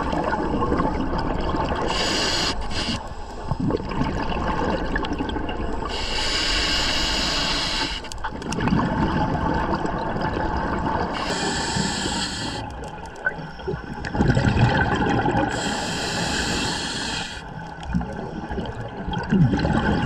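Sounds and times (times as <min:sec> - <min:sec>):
bubbling gurgling exhale: 0:00.0 - 0:07.8, 0:08.4 - 0:20.0
hissing regulator inhale: 0:01.9 - 0:03.5, 0:05.9 - 0:08.2, 0:11.2 - 0:12.8, 0:15.5 - 0:17.6.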